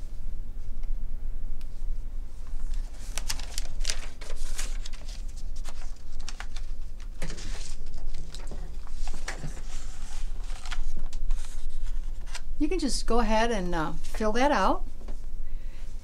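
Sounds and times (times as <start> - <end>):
room hum: 0.0 - 16.0
paper rustling: 2.4 - 12.5.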